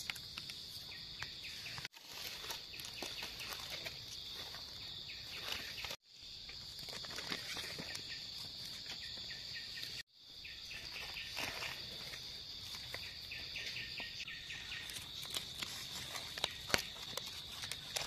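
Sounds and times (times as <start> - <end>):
high-pitched insect chorus: 0.0 - 18.0
hands rustling in leaf litter: 1.6 - 6.0, 10.8 - 13.5, 14.6 - 18.0.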